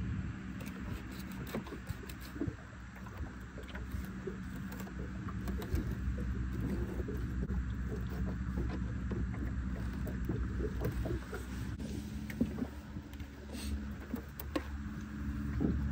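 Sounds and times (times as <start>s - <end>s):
boat engine idling: 0.0s - 15.9s.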